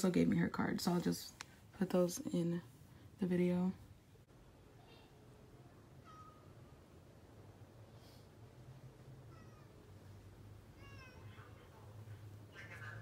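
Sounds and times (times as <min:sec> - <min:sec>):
cat meowing faintly: 0:09.2 - 0:09.9, 0:10.7 - 0:11.7.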